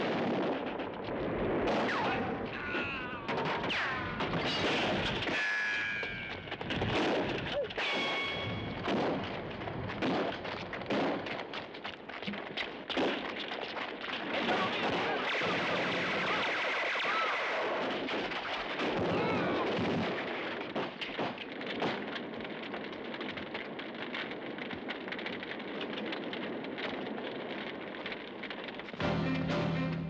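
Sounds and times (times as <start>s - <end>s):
gunshots: 0.0s - 27.0s.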